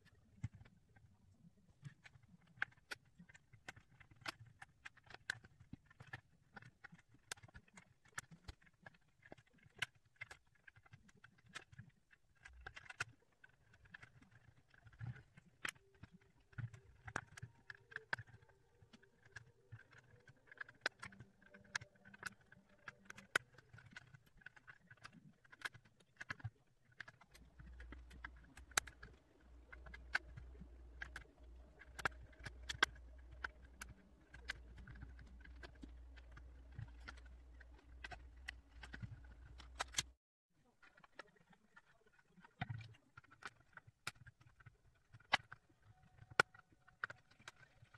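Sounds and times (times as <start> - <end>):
plastic puzzle pieces clicking: 1.8 - 47.9
low steady hum: 26.8 - 40.2.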